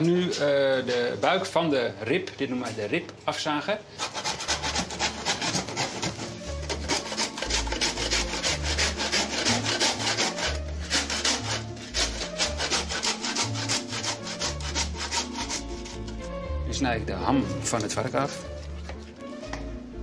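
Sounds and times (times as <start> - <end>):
handsaw sawing through bone: 4.0 - 16.1.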